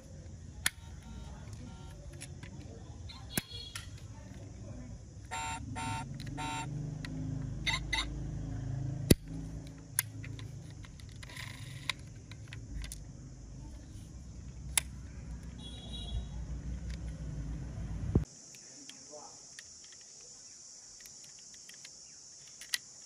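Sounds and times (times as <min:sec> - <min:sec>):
low engine-like rumble: 0:04.0 - 0:18.3
electronic chirp: 0:05.3 - 0:06.8
plastic clicks: 0:09.1 - 0:13.1, 0:14.5 - 0:15.6, 0:21.0 - 0:23.0.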